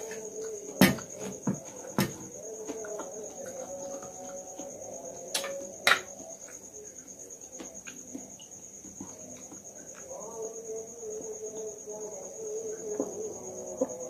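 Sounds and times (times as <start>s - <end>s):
crickets chirping: 0.0s - 14.0s.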